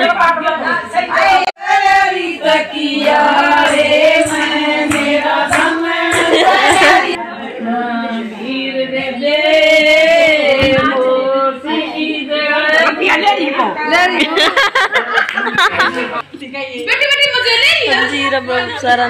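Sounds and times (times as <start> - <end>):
women singing together: 0.0 - 14.6.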